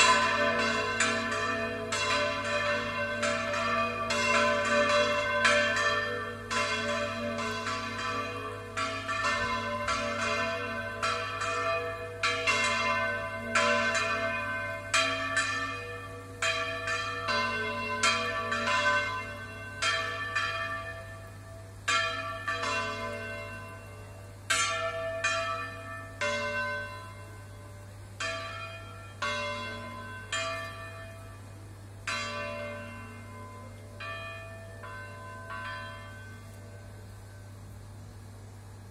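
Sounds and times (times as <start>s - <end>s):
church bells ringing: 0.0s - 37.6s.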